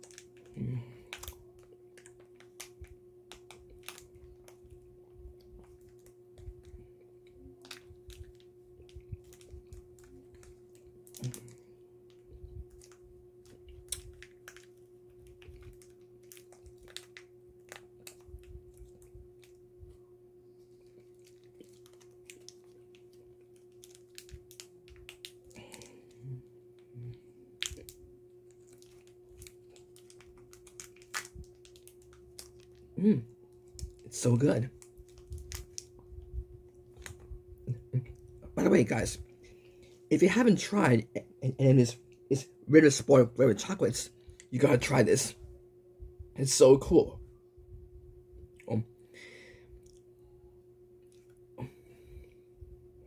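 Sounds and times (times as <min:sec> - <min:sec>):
chocolate wrapper crinkling: 0:00.0 - 0:04.8, 0:05.4 - 0:19.6, 0:20.6 - 0:26.2, 0:27.5 - 0:37.3
faint hum: 0:00.0 - 0:53.0.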